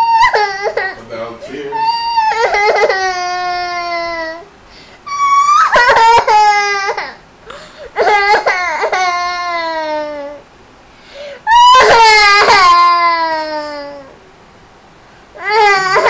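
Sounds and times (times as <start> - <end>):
girl crying wails: 0.0 - 1.0, 1.7 - 4.5, 5.1 - 7.2, 8.0 - 10.4, 11.4 - 14.2, 15.4 - 16.0.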